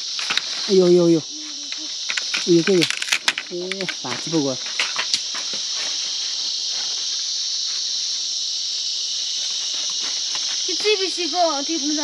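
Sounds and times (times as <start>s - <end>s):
insects shrilling: 0.0s - 12.0s
person speaking: 0.6s - 4.7s.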